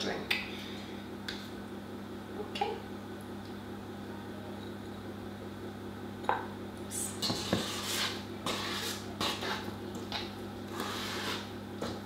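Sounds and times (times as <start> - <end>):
spoon scraping metal bowl: 7.2 - 9.7, 10.7 - 11.5
spoon stirring thick dough: 7.2 - 10.1.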